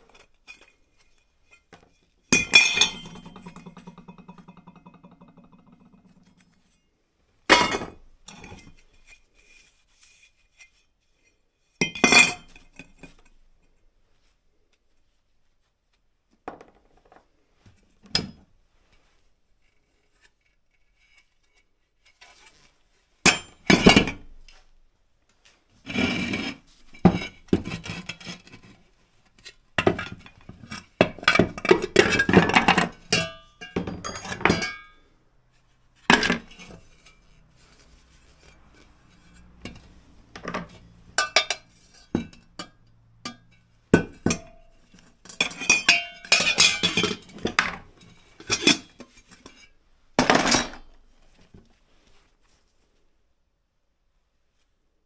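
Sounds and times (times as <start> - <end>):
metal parts clinking on workbench: 2.3 - 6.1, 45.2 - 49.6.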